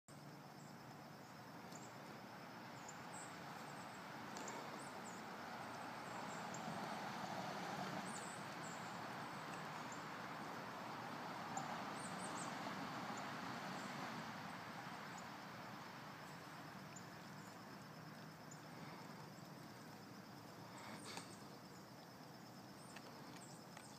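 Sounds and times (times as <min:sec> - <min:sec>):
small birds chirping: 0:00.2 - 0:07.1, 0:07.8 - 0:23.9.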